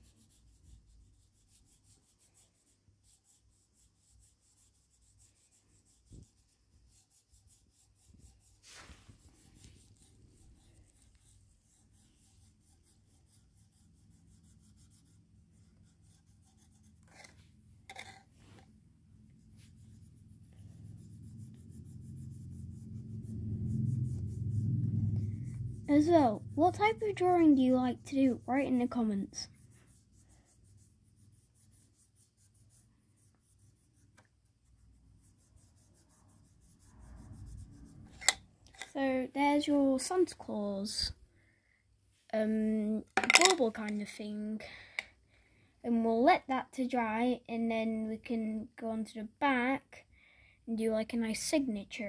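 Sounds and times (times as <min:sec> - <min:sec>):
marker scratching on bauble: 0:00.0 - 0:39.6
low hum: 0:18.5 - 0:29.7.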